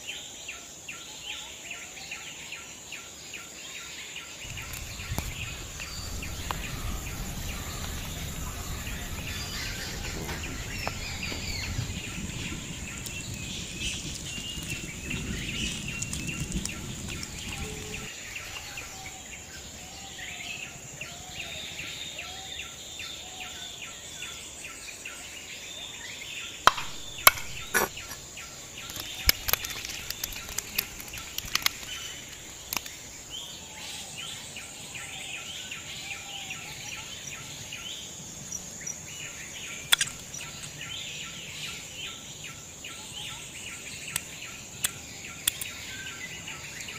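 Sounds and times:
insect drone: 0.0 - 46.9
birds chirping: 3.8 - 46.9
low rumble: 4.5 - 18.1
knife striking cutting board: 26.7 - 28.2.

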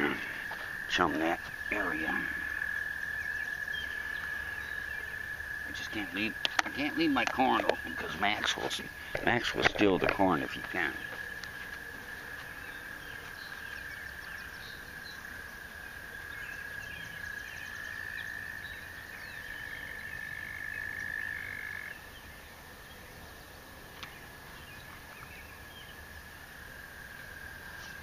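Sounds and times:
frogs trilling: 0.0 - 23.0, 24.0 - 28.0.

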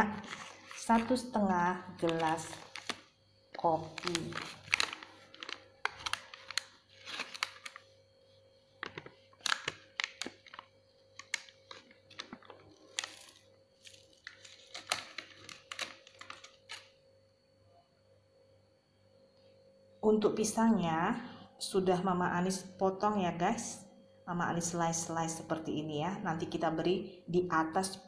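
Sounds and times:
plastic pouch crinkling: 0.1 - 1.2, 1.9 - 8.0, 8.7 - 17.0.

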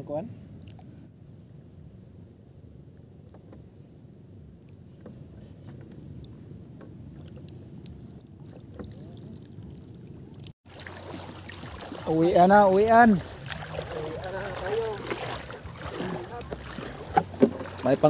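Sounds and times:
shallow water sloshing: 3.0 - 18.0
small splashes: 7.1 - 18.0.

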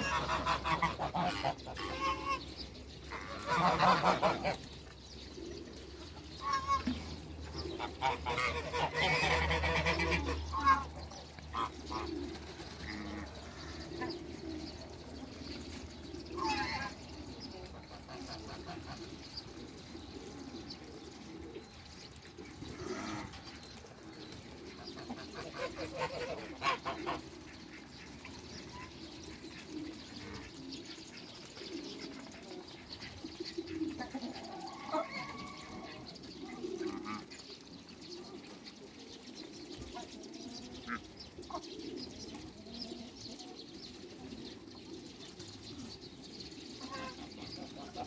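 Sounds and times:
geese honking: 0.0 - 2.5, 3.1 - 4.7, 7.7 - 12.1, 25.2 - 27.4
geese and ducks calling: 0.0 - 21.6, 22.4 - 38.6, 39.2 - 48.0.

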